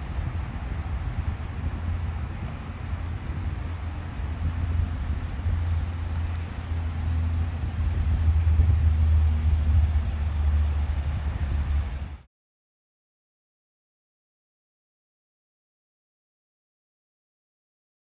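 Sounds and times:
car engine and road rumble: 0.0 - 12.2.

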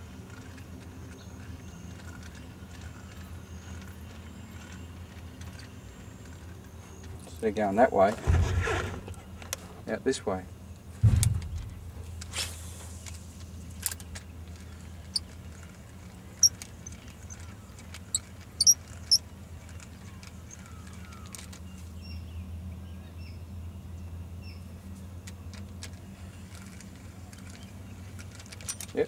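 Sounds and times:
steady low rumble: 10.9 - 13.9
bird chirps and calls: 16.4 - 19.2.

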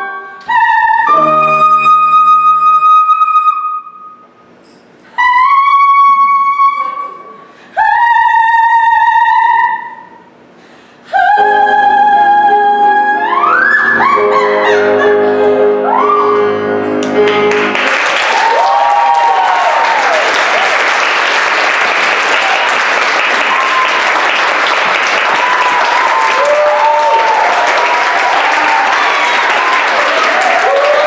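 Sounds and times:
sustained piano chord: 11.4 - 18.0
whooping cheers: 15.9 - 16.5, 18.0 - 21.0, 22.3 - 31.0
audience applauding: 17.0 - 31.0.

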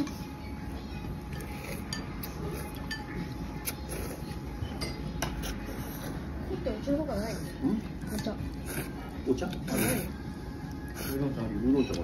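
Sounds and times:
dishes and chopsticks clinking: 1.3 - 3.4, 4.6 - 5.6, 11.7 - 12.0.

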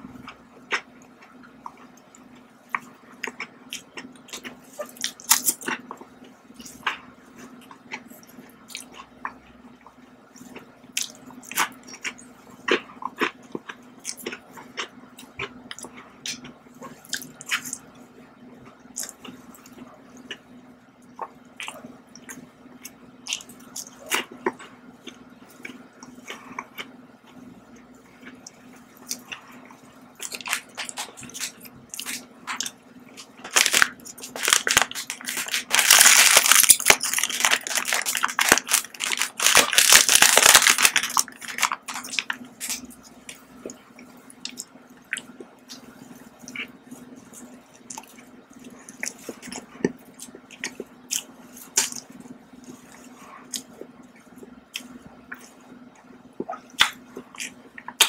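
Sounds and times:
faint low hum: 0.0 - 58.0
chewing and mouth clicks: 0.2 - 17.8, 21.0 - 58.0
plastic wrapper crinkling: 33.4 - 42.8.

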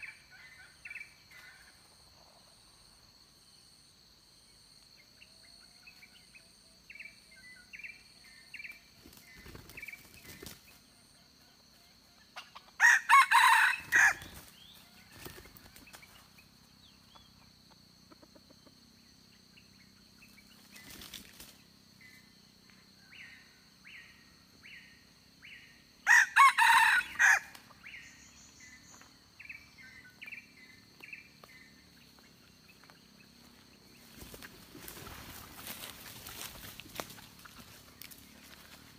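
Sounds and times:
high insect drone: 0.0 - 38.9
rooster crowing: 12.8 - 14.4, 26.0 - 27.6.

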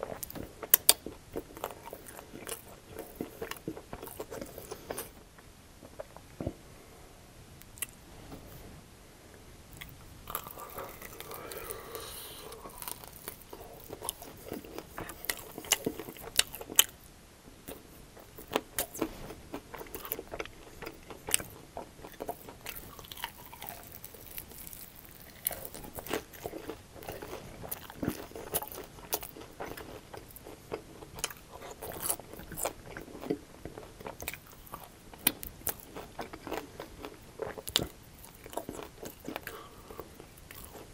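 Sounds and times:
wet chewing: 9.8 - 17.0, 17.7 - 40.9
crunchy chicken biting: 10.3 - 16.8.

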